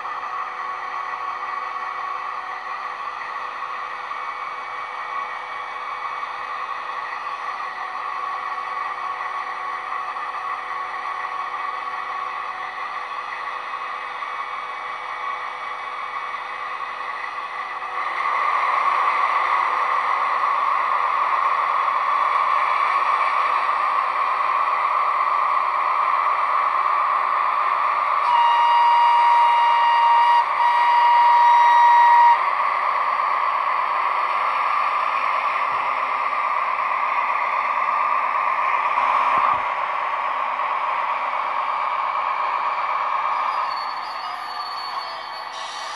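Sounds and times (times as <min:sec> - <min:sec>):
diesel engine through small speaker: 0:00.0 - 0:44.7
locomotive horn: 0:28.2 - 0:32.4.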